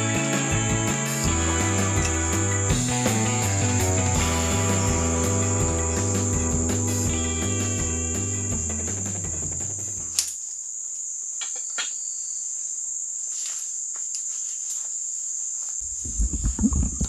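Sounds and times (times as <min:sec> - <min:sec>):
guitar music: 0:00.0 - 0:10.2
forest insects droning: 0:00.0 - 0:17.0.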